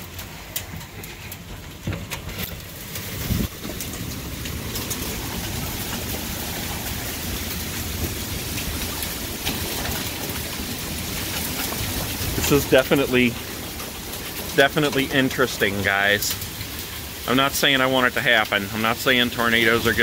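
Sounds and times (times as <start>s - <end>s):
hail ticking on window: 0.0s - 20.0s
heavy rain and hail hiss: 0.0s - 20.0s.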